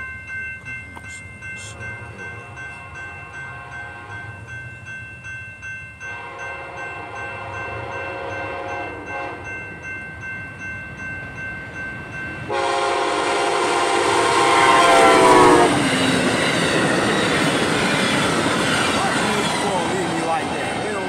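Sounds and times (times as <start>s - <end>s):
locomotive air horn: 6.1s - 9.4s, 12.5s - 15.9s
passenger cars rumbling on rails: 11.2s - 21.0s.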